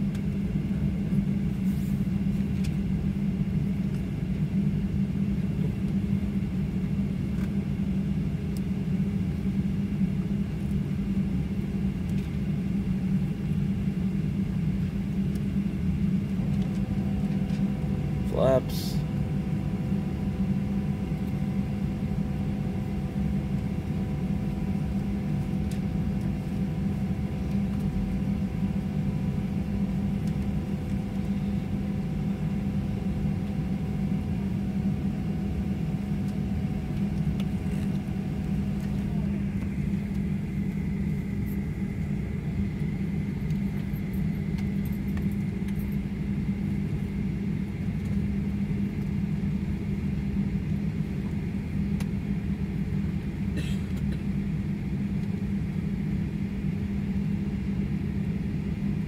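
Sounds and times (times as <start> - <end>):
jet engines idling hum: 0.0 - 59.0
higher whine: 15.0 - 46.1
steady whining tones: 15.1 - 46.0.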